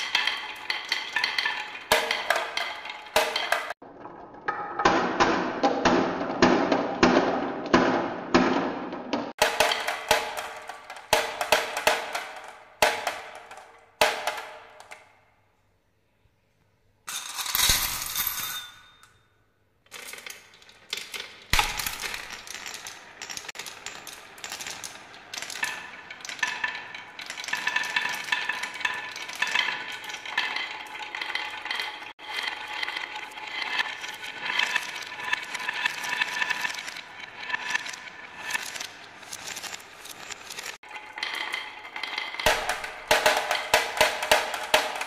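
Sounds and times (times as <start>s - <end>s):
marbles clattering on wooden run: 0.0s - 4.9s, 9.4s - 15.1s, 19.9s - 45.0s.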